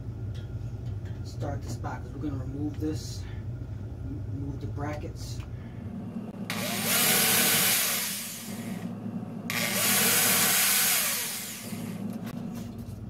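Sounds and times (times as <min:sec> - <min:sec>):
electric drill drilling into metal: 0:06.5 - 0:08.8, 0:09.5 - 0:12.1.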